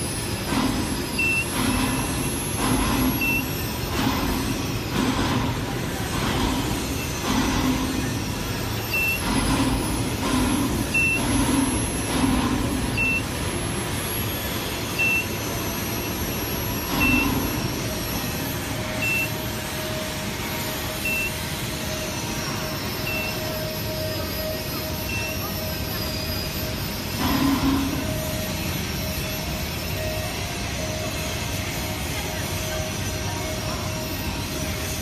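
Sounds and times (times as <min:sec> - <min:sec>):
factory machinery din: 0:00.0 - 0:35.0
short electronic beeps: 0:01.2 - 0:01.9, 0:03.2 - 0:03.6, 0:08.9 - 0:09.3, 0:10.9 - 0:11.4, 0:12.9 - 0:13.3, 0:14.9 - 0:17.6, 0:18.8 - 0:19.4, 0:21.0 - 0:21.4, 0:23.0 - 0:26.2.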